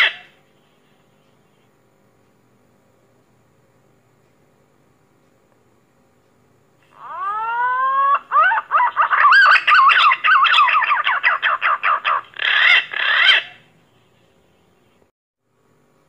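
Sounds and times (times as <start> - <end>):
pigeon whistling song: 7.1 - 13.6.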